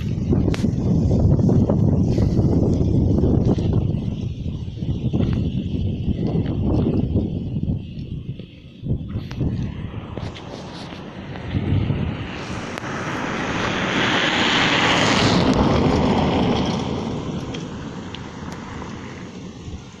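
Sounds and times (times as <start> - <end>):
car speeding past on dirt road: 9.6 - 20.0.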